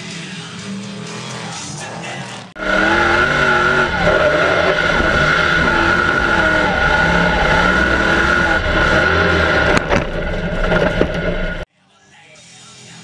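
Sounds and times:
truck engine revving: 0.8s - 11.7s
steady high whine: 2.6s - 11.7s.

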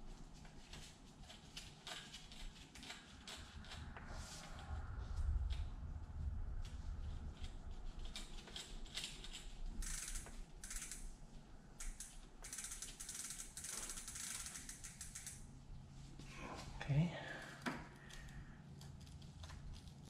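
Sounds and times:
bicycle chain rattling and clicking: 7.4s - 15.5s.

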